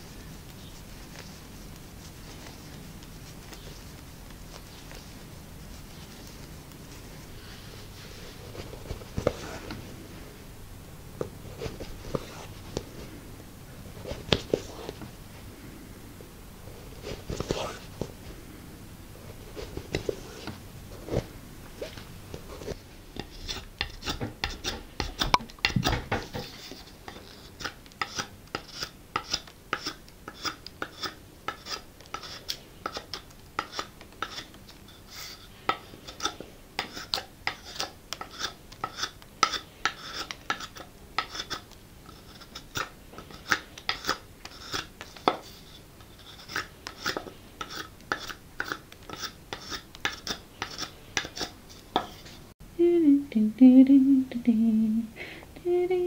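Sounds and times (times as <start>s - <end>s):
knife shaving wood: 22.6s - 52.4s.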